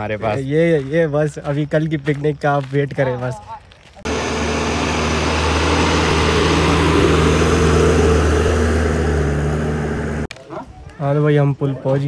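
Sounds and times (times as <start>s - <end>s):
road and wind hiss: 4.0s - 10.3s
vehicle engine humming: 4.0s - 10.3s.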